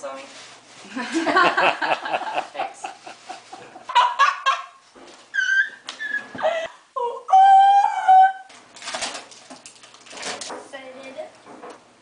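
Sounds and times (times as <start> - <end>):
girl laughing: 0.9 - 7.2
girl squealing with excitement: 5.3 - 8.5.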